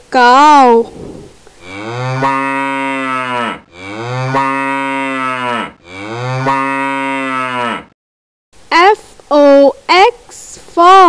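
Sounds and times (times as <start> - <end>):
cow mooing: 1.6 - 8.0.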